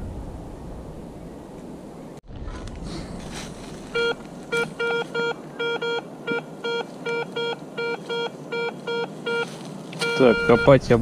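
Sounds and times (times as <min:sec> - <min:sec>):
metal detector beeping: 0:03.9 - 0:10.9.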